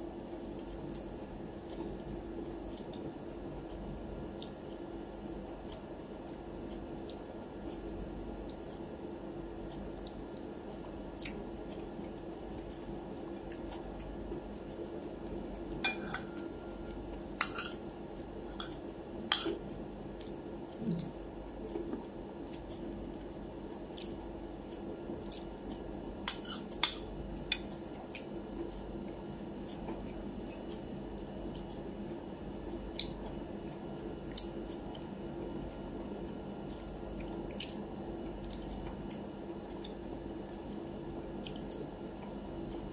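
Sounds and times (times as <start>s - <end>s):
quiet chewing: 0.3s - 3.1s, 9.7s - 42.9s.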